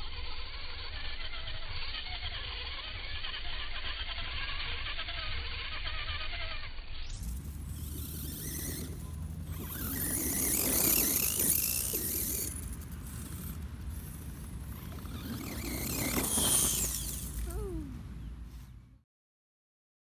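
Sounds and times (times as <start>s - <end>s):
electric motor and gears whining: 0.0s - 18.6s.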